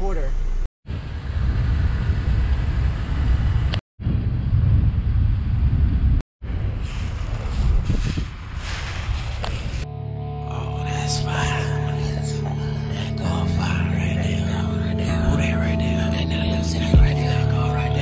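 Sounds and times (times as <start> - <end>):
wind buffeting microphone: 0.9 - 9.9.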